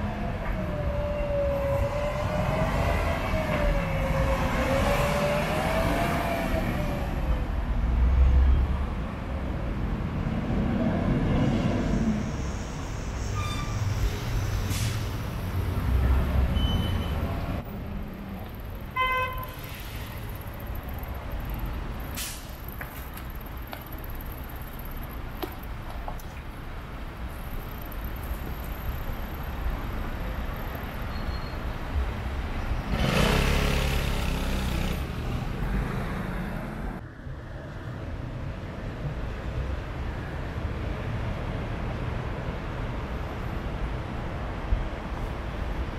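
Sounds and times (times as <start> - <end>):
traffic rumble: 0.0 - 45.9
car horn toot: 19.0 - 19.6
vehicle passing close: 32.8 - 37.0.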